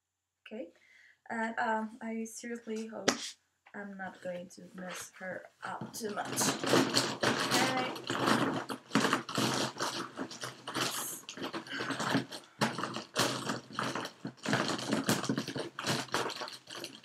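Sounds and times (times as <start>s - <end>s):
cloth rustling: 4.8s - 17.0s
markers clattering in a box: 5.7s - 17.0s.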